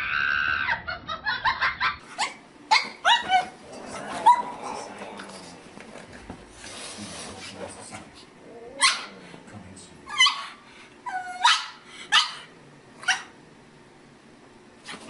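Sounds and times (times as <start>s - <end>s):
dog yipping and whining: 2.2s - 3.6s, 8.7s - 9.1s, 10.1s - 13.3s.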